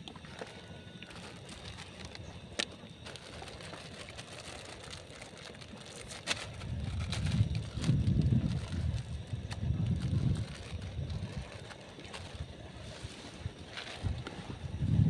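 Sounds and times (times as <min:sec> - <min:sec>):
plastic packet crinkling and tearing: 0:00.4 - 0:12.4
wind buffeting microphone: 0:06.3 - 0:15.0.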